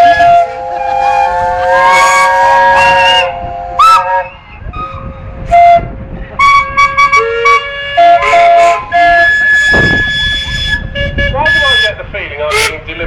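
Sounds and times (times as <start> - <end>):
steam whistles blowing together: 0.0 - 12.8
short loud whistle blast: 8.6 - 10.8.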